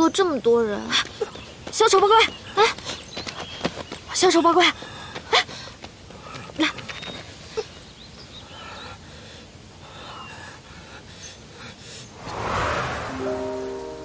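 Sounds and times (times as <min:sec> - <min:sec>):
forest ambience: 0:00.0 - 0:14.0
faint bird chirps: 0:06.7 - 0:09.1.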